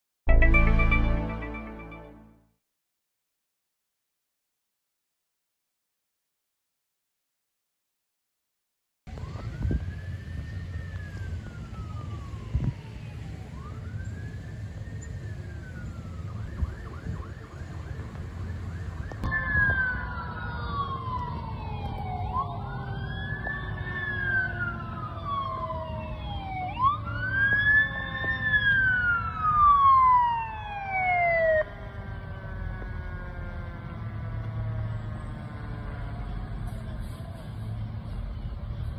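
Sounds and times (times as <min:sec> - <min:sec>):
emergency sirens wailing: 0:00.3 - 0:02.3, 0:09.1 - 0:38.9
mechanical siren winding down: 0:09.1 - 0:37.0.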